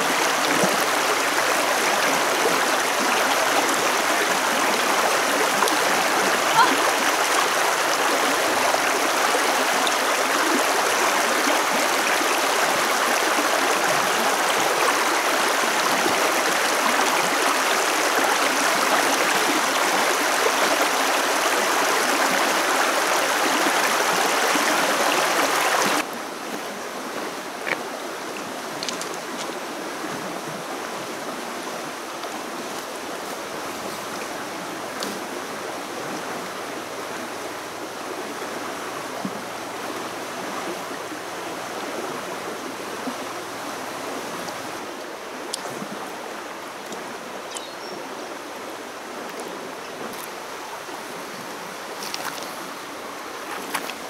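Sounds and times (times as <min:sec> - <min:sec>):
stream rushing over stones: 0:00.0 - 0:54.0.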